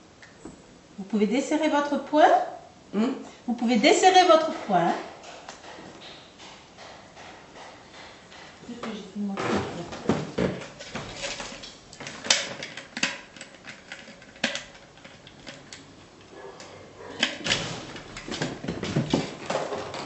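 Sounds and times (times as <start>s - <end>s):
medical equipment clicks and knocks: 4.4s - 20.0s.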